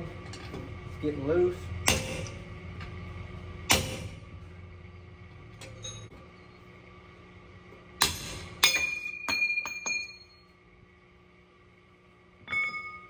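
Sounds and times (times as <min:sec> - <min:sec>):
hammer striking metal punch: 0:01.8 - 0:02.4, 0:03.7 - 0:04.2, 0:08.0 - 0:10.4.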